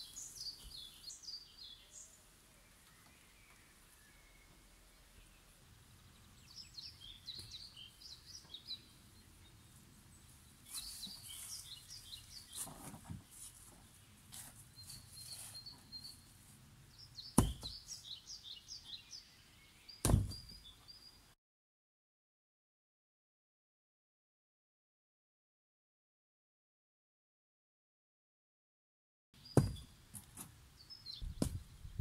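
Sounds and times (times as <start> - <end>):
songbird chirping: 0.0 - 21.4, 29.4 - 32.0
loud sharp knocks: 17.4 - 17.8, 20.0 - 20.5, 29.6 - 29.8.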